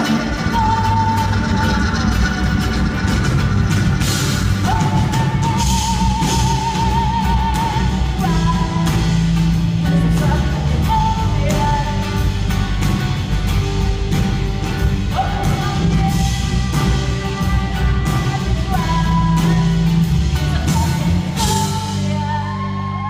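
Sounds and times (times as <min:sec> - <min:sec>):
woman singing: 0:00.0 - 0:02.8, 0:04.4 - 0:23.0
strummed acoustic guitar: 0:00.0 - 0:22.2.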